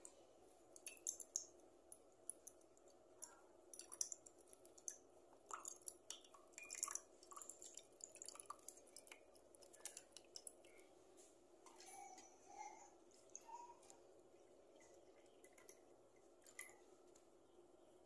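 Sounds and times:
liquid trickling into a glass: 0.8s - 10.9s.

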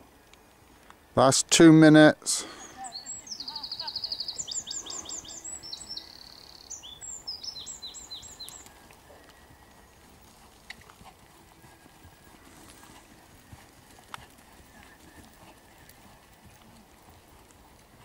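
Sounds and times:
songbird trilling and whistling: 2.6s - 8.9s
horse hooves thudding on sand: 6.8s - 18.0s.

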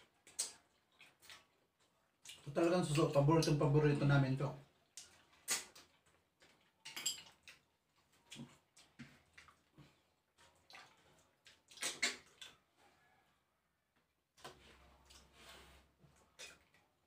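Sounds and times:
wet slurping and lip-smacking: 10.4s - 12.6s.

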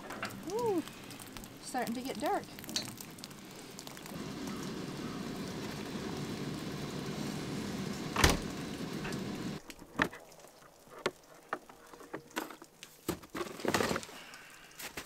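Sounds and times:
sap boiling with bubbling hiss: 0.0s - 15.0s
plastic jugs clicking and knocking: 11.0s - 14.2s.

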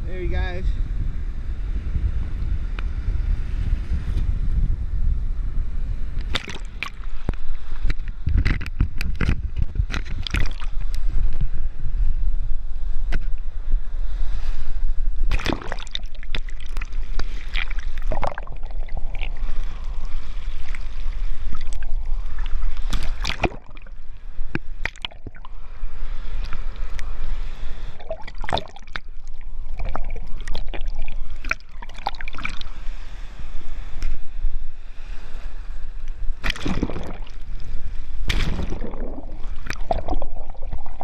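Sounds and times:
water sloshing over sand: 14.1s - 34.3s, 34.9s - 41.0s.

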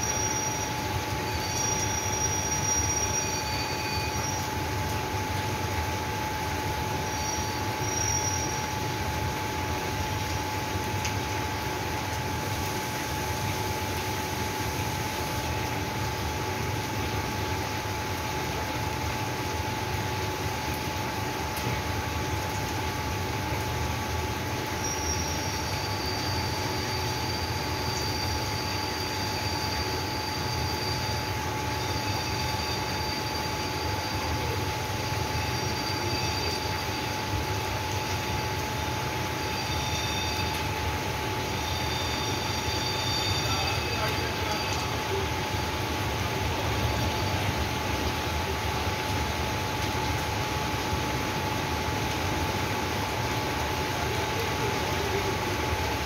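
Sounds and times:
heavy rain on flooded street: 0.0s - 56.0s
thin high whistling tones: 41.6s - 45.2s.

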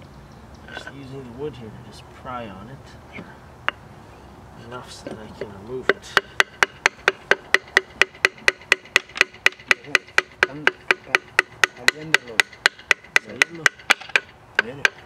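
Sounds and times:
hammer striking wooden board: 5.8s - 15.0s.

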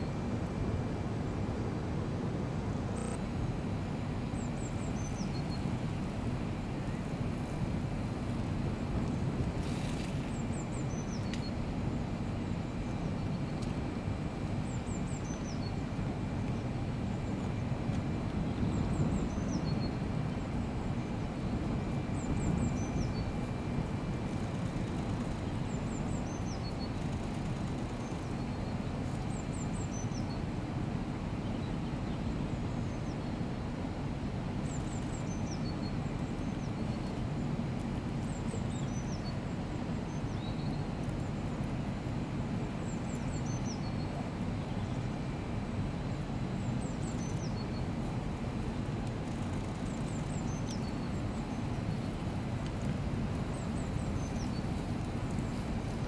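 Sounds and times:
low drone of plant noise: 0.0s - 56.0s
songbird singing: 4.3s - 5.8s, 9.6s - 11.6s, 14.6s - 15.9s, 18.4s - 20.4s, 21.0s - 23.7s, 24.3s - 30.5s, 31.4s - 33.4s, 34.6s - 37.2s, 38.2s - 41.0s, 42.9s - 45.0s, 46.0s - 47.9s, 49.7s - 52.2s, 53.4s - 56.0s.

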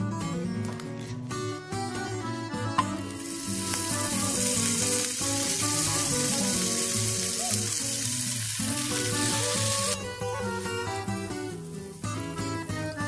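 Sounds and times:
butter sizzling in skillet: 2.8s - 13.0s.

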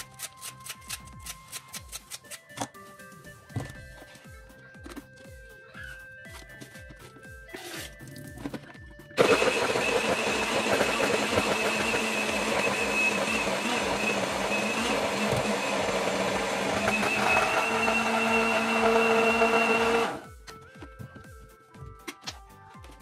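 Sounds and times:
blender running: 9.2s - 20.2s.

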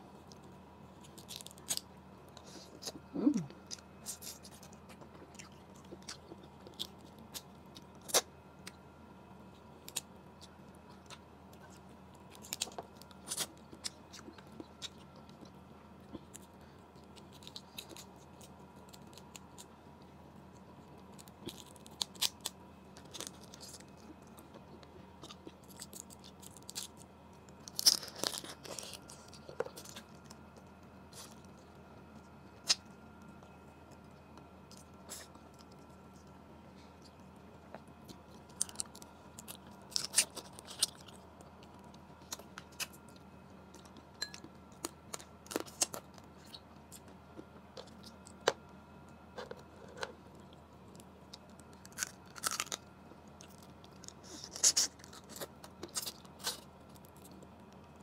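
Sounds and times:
chewing and mouth sounds: 0.2s - 8.8s.

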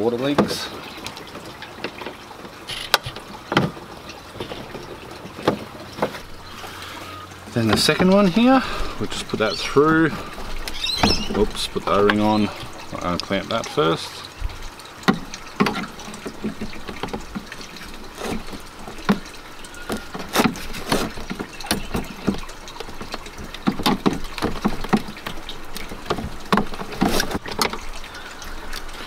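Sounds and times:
plastic hose handling: 7.6s - 13.7s, 14.4s - 28.1s
plastic knocking and rubbing: 14.5s - 27.9s.

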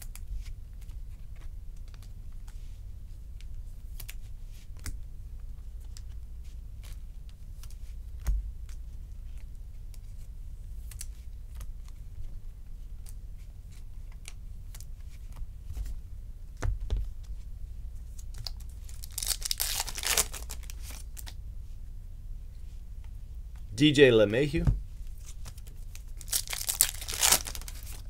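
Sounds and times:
foil wrapper tearing open: 18.4s - 21.3s, 25.5s - 28.0s
trading cards clicking and snapping: 25.4s - 28.0s.

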